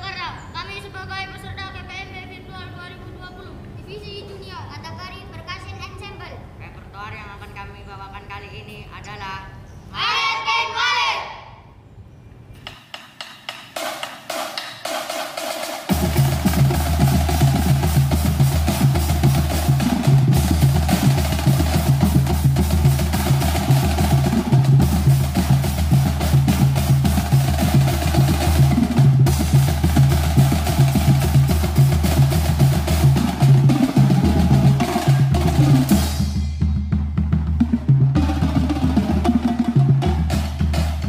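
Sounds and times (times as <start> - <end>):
snare drums rolling: 12.6 - 41.0
tenor drums playing: 12.6 - 41.0
deep bass drum notes: 15.9 - 41.0.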